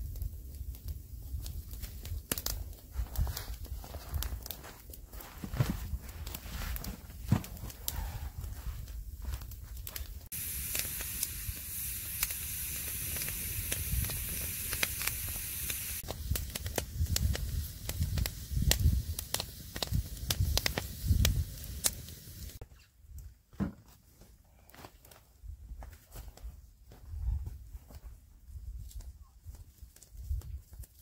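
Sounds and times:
campfire crackling and popping: 0.0 - 22.6, 28.8 - 31.0
high sizzling hiss: 9.9 - 22.6.

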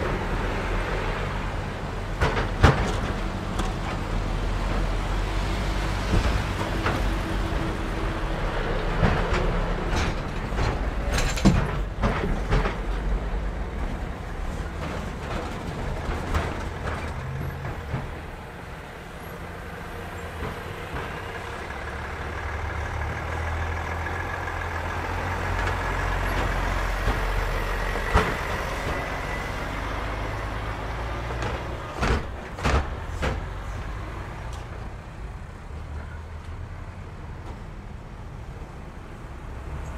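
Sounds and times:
lorry diesel engines passing: 0.0 - 39.9
wheels knocking over rails: 6.1 - 18.8, 19.8 - 34.0.

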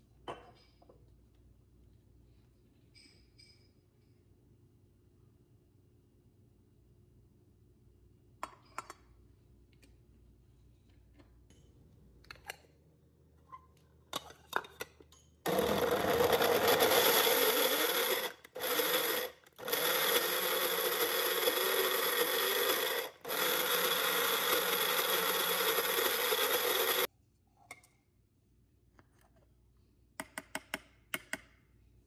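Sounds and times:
electric grinder motor running: 15.5 - 27.1.

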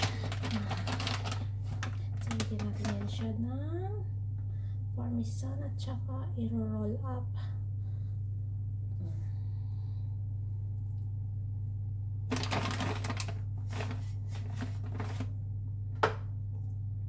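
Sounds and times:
plastic packaging rustling: 0.0 - 3.4, 12.3 - 15.4
low hum: 0.0 - 17.0.

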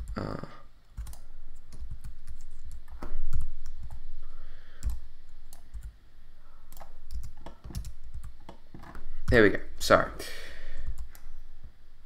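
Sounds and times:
keyboard keys clicking: 1.0 - 4.0, 4.8 - 5.9, 6.7 - 9.4.

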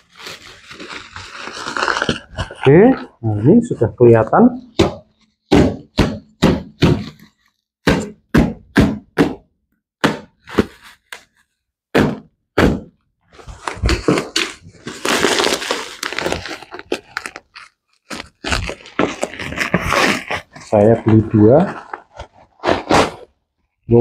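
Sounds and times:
packaging rustling and tearing: 0.0 - 3.2, 13.4 - 23.3
sharp thunks and cracking knocks: 4.7 - 10.7, 11.9 - 13.0.

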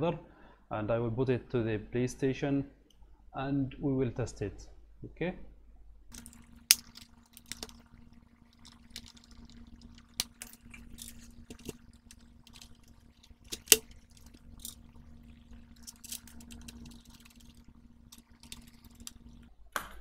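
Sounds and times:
faint steady hum: 0.0 - 20.0
plastic parts clicking and knocking: 6.1 - 7.9, 8.6 - 14.9, 15.7 - 20.0.

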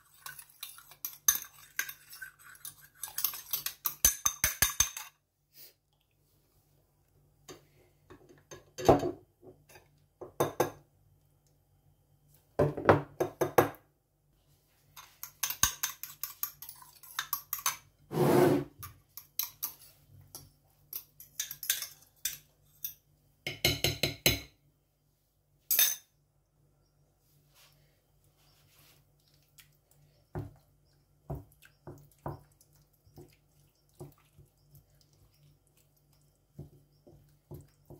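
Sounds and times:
cutlery clinking against glass bowl: 0.0 - 5.2, 15.0 - 17.9, 18.8 - 24.5, 25.7 - 26.1.

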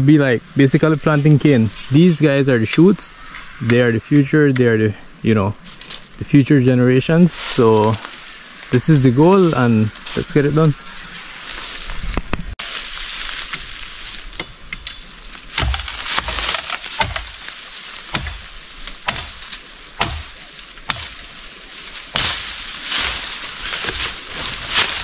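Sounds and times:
bamboo being chopped: 13.3 - 21.3, 22.0 - 25.0.

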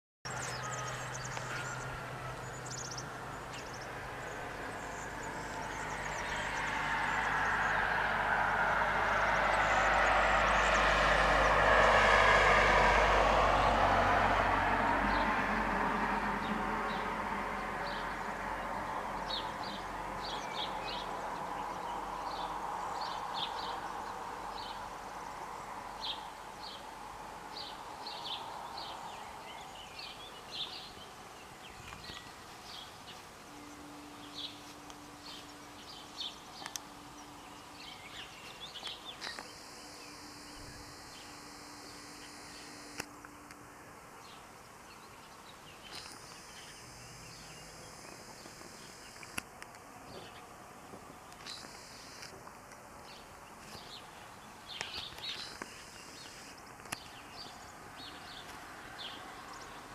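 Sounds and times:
birds chirping: 0.2 - 12.5, 17.8 - 26.9, 27.5 - 43.5, 44.1 - 49.4, 50.0 - 52.3, 53.0 - 59.9
steady low buzz: 0.3 - 22.9, 32.4 - 50.8, 51.5 - 52.3
vehicle road noise: 0.3 - 59.9.

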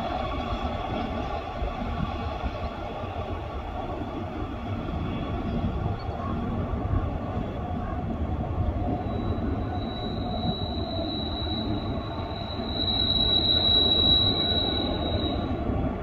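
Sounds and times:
low rumble of train cars: 0.0 - 16.0
train wheels squealing: 8.6 - 15.9.

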